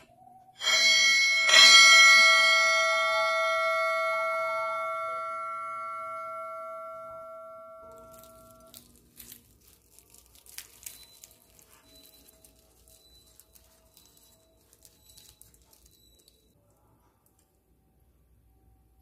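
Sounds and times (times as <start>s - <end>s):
chime-like chord ringing: 0.6s - 8.8s
flaky bread crackling: 7.8s - 16.7s.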